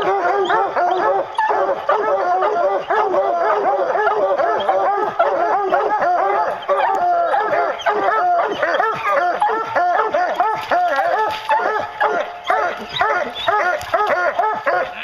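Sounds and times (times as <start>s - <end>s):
hounds baying and barking: 0.0s - 15.0s.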